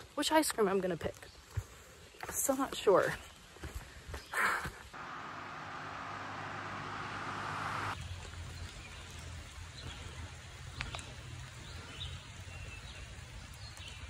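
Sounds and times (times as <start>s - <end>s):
low hum: 5.0s - 8.0s
steady hiss: 5.0s - 8.0s.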